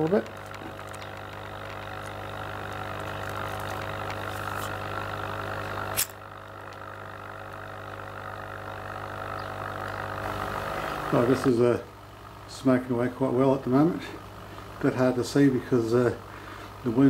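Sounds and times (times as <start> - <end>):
air pump humming: 0.0 - 17.0
lighter click: 6.0 - 6.2.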